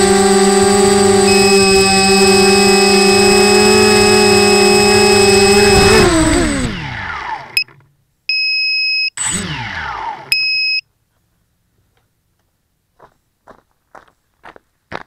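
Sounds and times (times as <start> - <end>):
quadcopter motors whining: 0.0 - 7.7, 9.2 - 10.8
electronic beeps: 1.3 - 5.5, 10.3 - 10.8.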